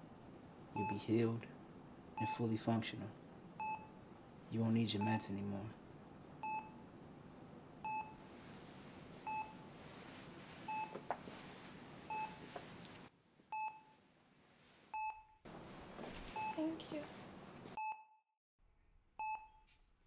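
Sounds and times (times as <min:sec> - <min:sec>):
faint room hiss: 0:00.0 - 0:17.8
patient monitor beeping: 0:00.8 - 0:01.2, 0:02.2 - 0:02.7, 0:03.6 - 0:04.0, 0:04.9 - 0:05.4, 0:06.4 - 0:06.8, 0:07.8 - 0:08.3, 0:09.2 - 0:09.7, 0:10.7 - 0:11.1, 0:12.1 - 0:12.5, 0:13.5 - 0:14.0, 0:16.3 - 0:16.8.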